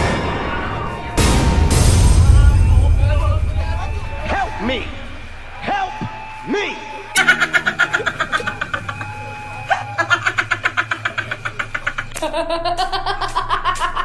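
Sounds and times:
high-pitched cackling laughter: 0:07.2 - 0:14.0.

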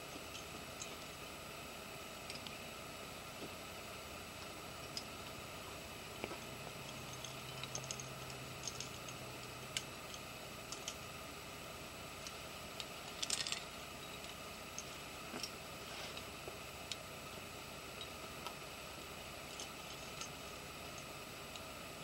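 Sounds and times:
steady hiss: 0:00.0 - 0:22.0
climbing hardware clinking: 0:06.2 - 0:11.1, 0:12.8 - 0:17.0, 0:19.5 - 0:21.1.

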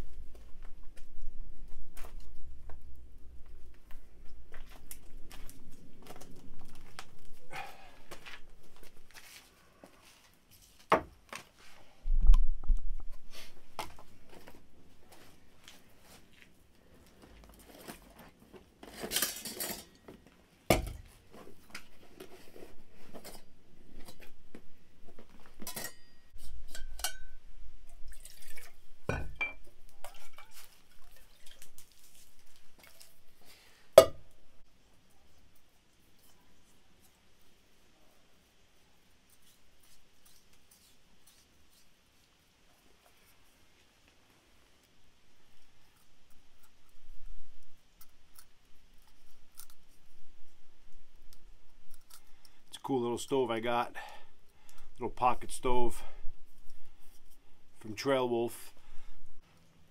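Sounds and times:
metal cookware clinking: 0:25.6 - 0:27.4.

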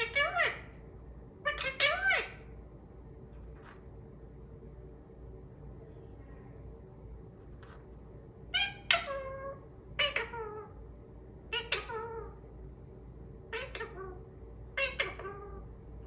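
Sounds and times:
parakeet mimicking a word: 0:00.0 - 0:00.7, 0:13.5 - 0:14.2, 0:14.8 - 0:15.6.

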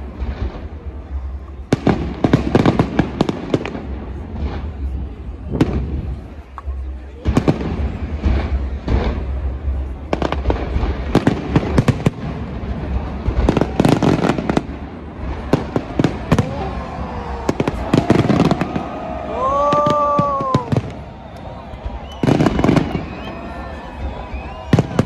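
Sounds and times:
fireworks bangs and crackling: 0:00.0 - 0:25.0
pitched whoop: 0:16.3 - 0:25.0.

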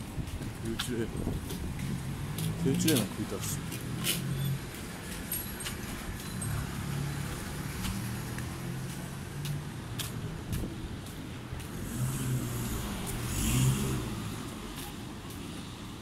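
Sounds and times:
vehicle engine passing: 0:01.7 - 0:05.0, 0:11.6 - 0:14.8.

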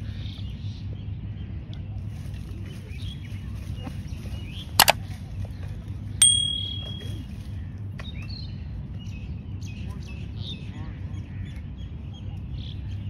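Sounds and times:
metallic bell ding: 0:06.2 - 0:07.2.

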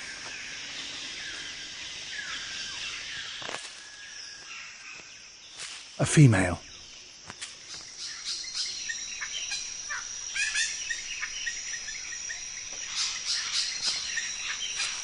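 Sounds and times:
high-pitched insect drone: 0:06.5 - 0:15.0.

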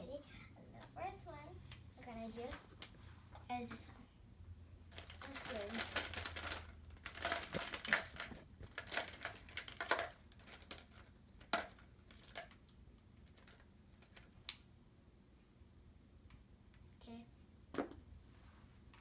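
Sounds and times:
plastic markers clattering: 0:04.9 - 0:14.3.

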